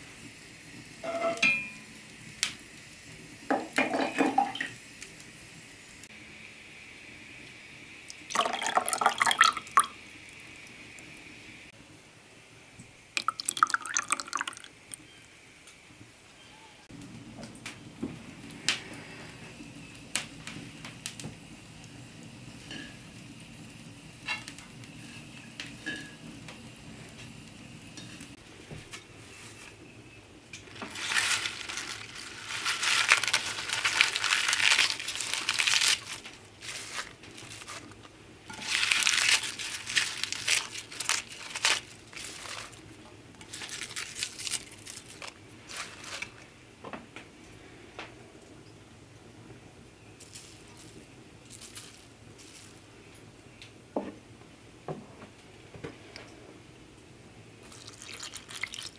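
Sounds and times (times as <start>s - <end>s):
spinach leaves rustling: 30.6s - 46.6s, 50.1s - 53.3s, 57.6s - 58.9s.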